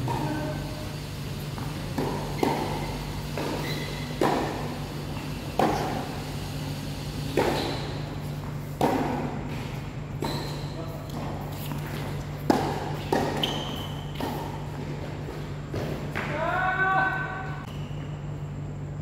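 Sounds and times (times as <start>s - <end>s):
steady low hum: 0.0s - 19.0s
rackets striking tennis ball: 1.5s - 6.5s, 7.2s - 16.4s.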